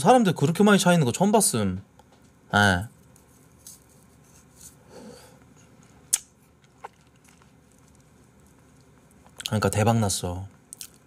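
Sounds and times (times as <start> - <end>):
soft mouth sounds eating: 5.4 - 9.6.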